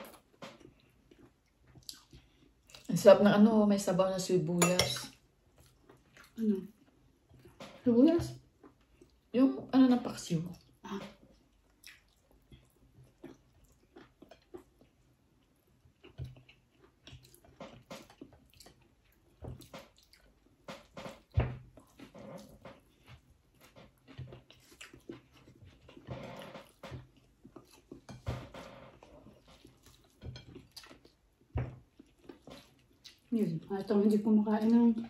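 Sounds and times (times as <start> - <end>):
chewing and lip smacking: 0.0 - 2.9, 10.6 - 20.6, 21.8 - 28.2, 29.2 - 35.0.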